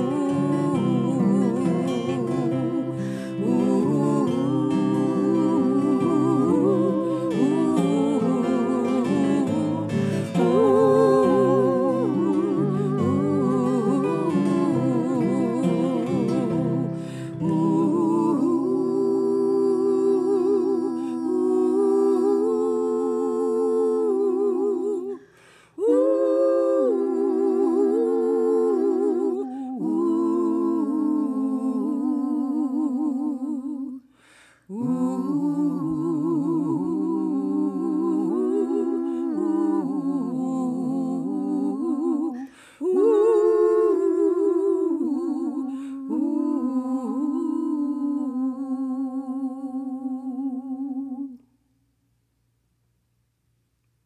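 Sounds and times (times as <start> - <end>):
voices humming in harmony: 0.0 - 25.2, 34.7 - 51.4.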